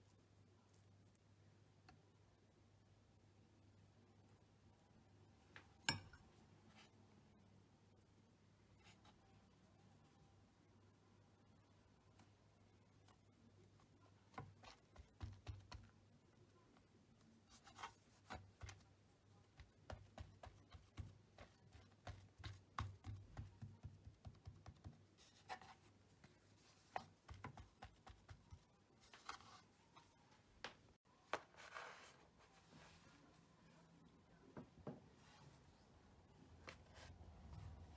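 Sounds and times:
hands patting dough: 14.3 - 16.1, 17.5 - 29.4.

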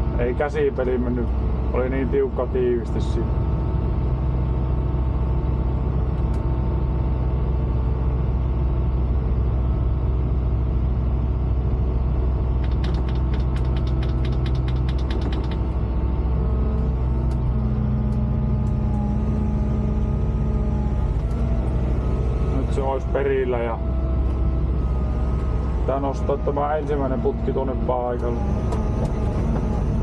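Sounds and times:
excavator diesel engine running: 0.0 - 30.0
rapid clicks: 12.6 - 15.8.

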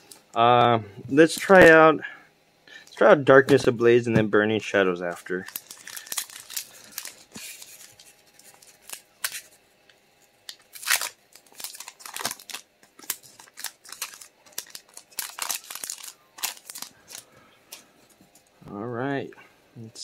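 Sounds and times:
foil pack crinkling and tearing: 5.2 - 9.6, 10.4 - 17.3.

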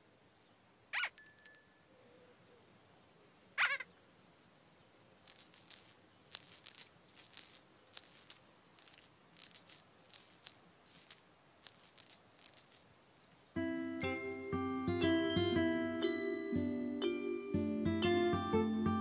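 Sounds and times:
shaker in soundtrack music: 5.3 - 13.6.

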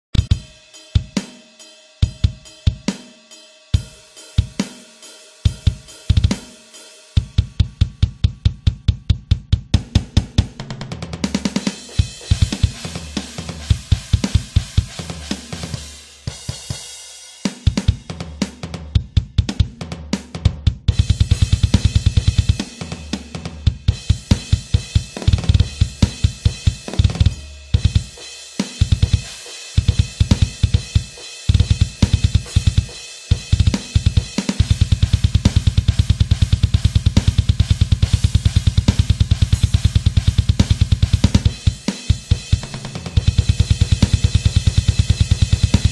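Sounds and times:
drum kit playing: 0.1 - 45.9
fast bass drum: 0.2 - 1.1, 5.5 - 6.5, 7.2 - 17.0, 17.6 - 45.9
cymbals crashing: 0.3 - 7.4.

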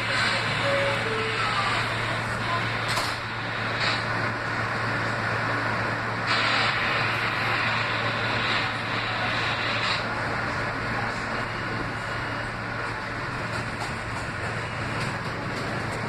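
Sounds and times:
subway car doors closing: 0.0 - 4.3
train equipment hum: 0.0 - 16.0
air hiss: 6.2 - 10.1.

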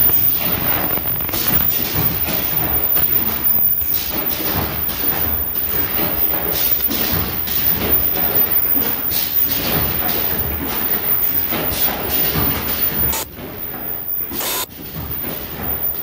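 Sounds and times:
machine thumps: 0.0 - 16.0
production line mechanical clatter: 0.0 - 16.0.

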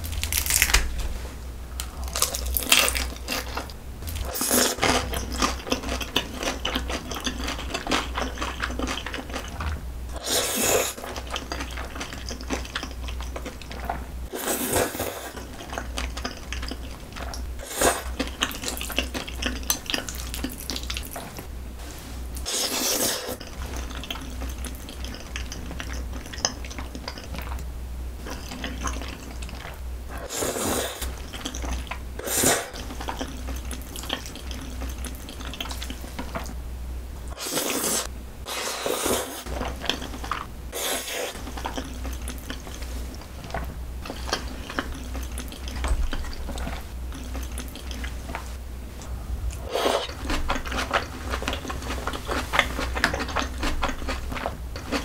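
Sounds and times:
wet chewing and smacking: 1.8 - 9.8, 10.9 - 14.0, 15.0 - 21.5, 23.3 - 30.3, 31.0 - 32.1, 32.7 - 36.6, 39.4 - 40.5, 41.3 - 55.0
noodles slurped: 37.3 - 48.4.

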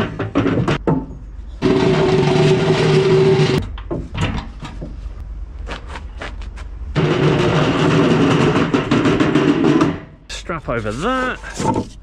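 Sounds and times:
metal ramp grinding scrape: 0.0 - 3.7, 6.9 - 12.0
knocks on metal ramp: 7.0 - 10.1.

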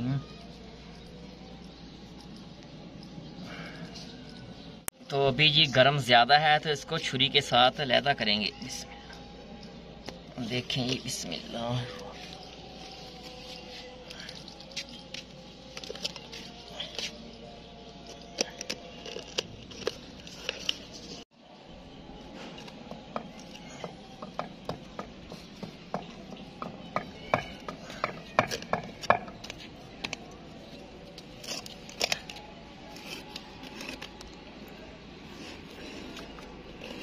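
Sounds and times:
knife scraping crust on steel: 31.1 - 34.4.

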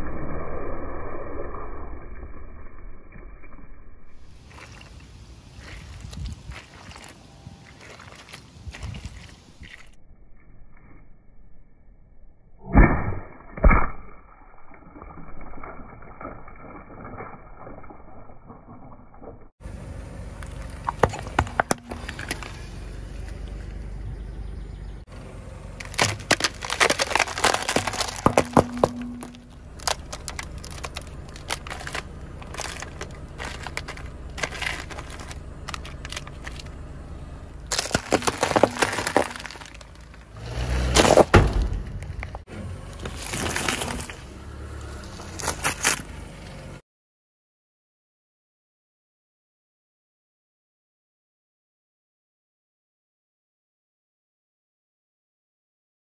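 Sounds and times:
low steady rumble: 19.1 - 46.8
plastic cups cracking under tyre: 20.4 - 22.6, 25.8 - 36.8, 37.6 - 40.3
gel beads crunching: 25.8 - 36.7, 37.7 - 40.2.

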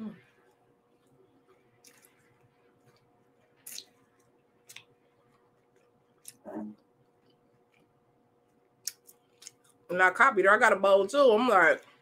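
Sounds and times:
wet mouth clicks chewing: 8.8 - 9.8.

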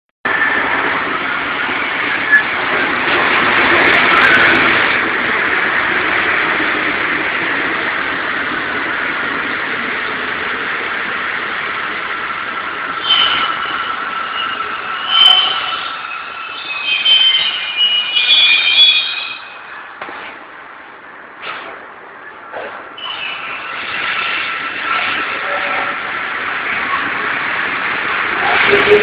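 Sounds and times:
train wheels rumbling on rails: 0.3 - 29.0.

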